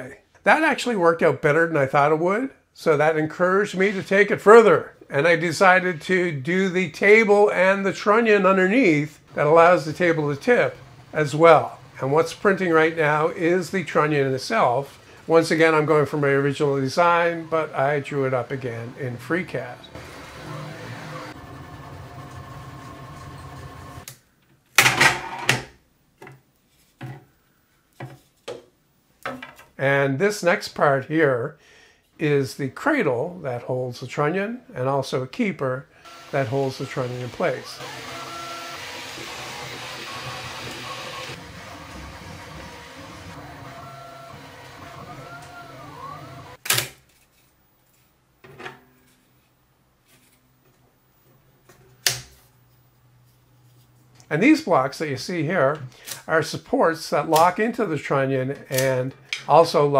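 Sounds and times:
stepper motors whining: 9.3 - 24.1, 36.1 - 46.6.

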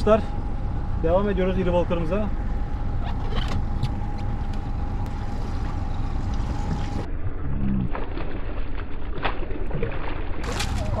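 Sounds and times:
boat engine idling: 0.0 - 7.9
faint steady whine: 0.0 - 7.9.

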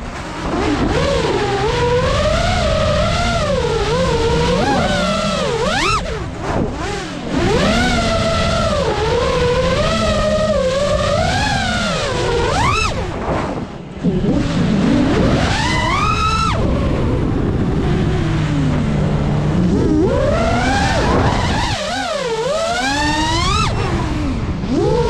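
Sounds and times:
drone motors whining: 0.0 - 25.0.

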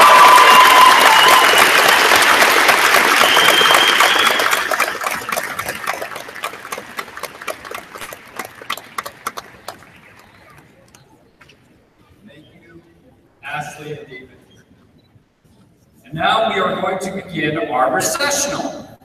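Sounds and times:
shouts: 0.0 - 1.8
crowd applauding and cheering: 0.0 - 10.7.

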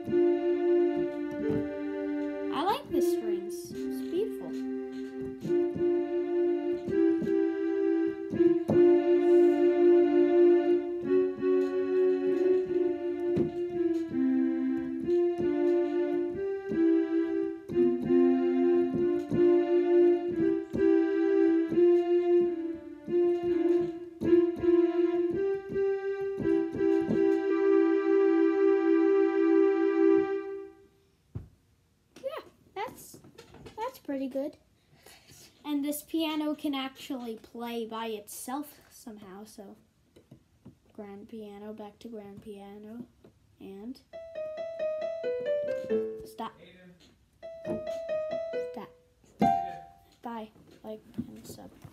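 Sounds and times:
digital piano strings tune: 0.0 - 30.7, 44.1 - 46.6, 47.4 - 50.1.

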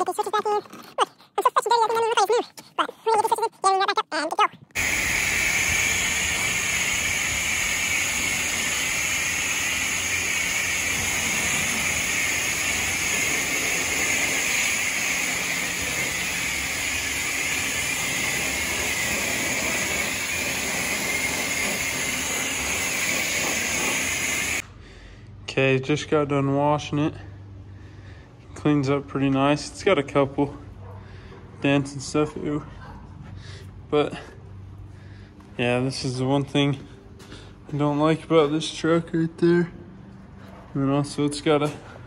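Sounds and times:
water spraying hiss: 4.8 - 24.6.

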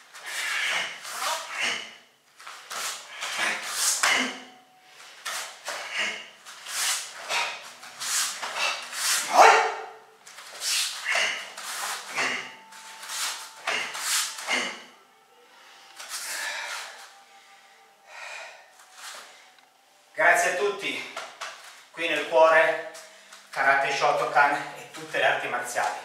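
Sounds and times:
forceful exhalation: 0.2 - 9.6, 10.6 - 15.0.

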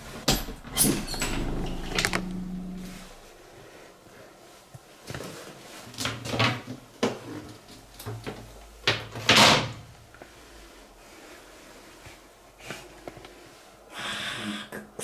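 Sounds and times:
door scrapes and knocks: 0.4 - 3.3.

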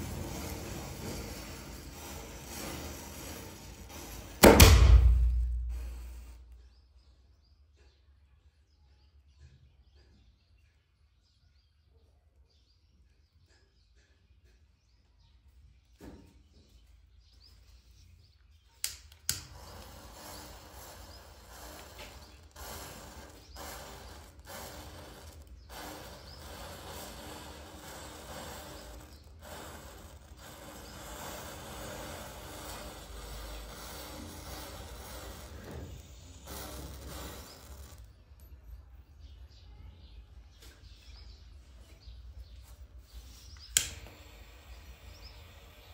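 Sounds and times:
sharp pops: 2.0 - 6.4
matches crackling fizz: 18.9 - 38.1.

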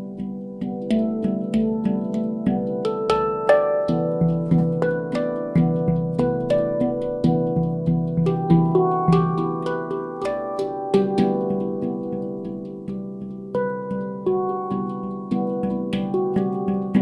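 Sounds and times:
handpan melody: 0.0 - 17.0.

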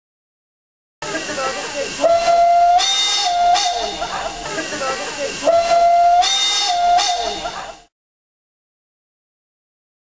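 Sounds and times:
steam locomotive whistle blasts: 2.0 - 4.0, 5.4 - 7.5.

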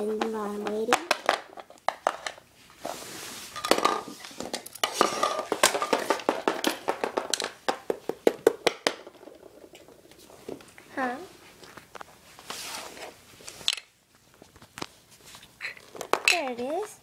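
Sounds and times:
plastic toys clattering on floor: 0.0 - 2.4, 3.5 - 10.8, 15.6 - 17.0.

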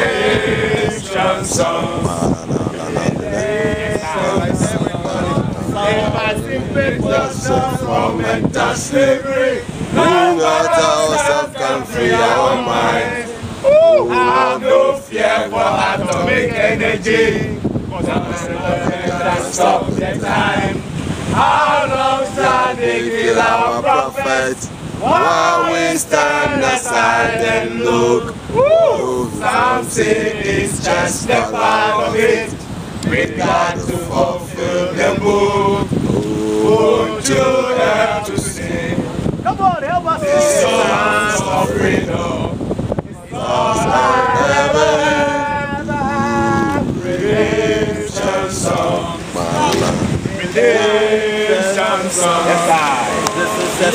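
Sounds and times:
men singing and chanting: 0.0 - 53.9
voice swooping in a whoop: 13.6 - 14.3, 28.5 - 29.4.

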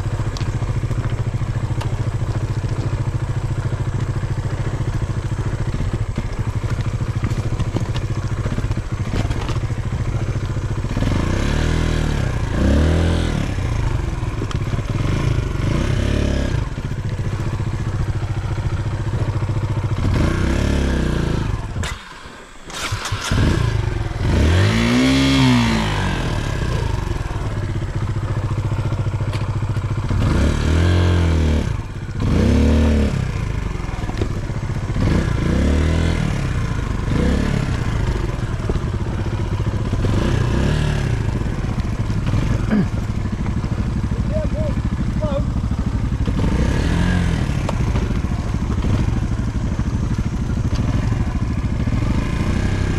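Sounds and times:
motorcycle engine running: 0.0 - 52.9
rocks clattering under tyres: 0.1 - 10.9, 14.2 - 15.0, 34.0 - 34.6, 37.7 - 40.2.

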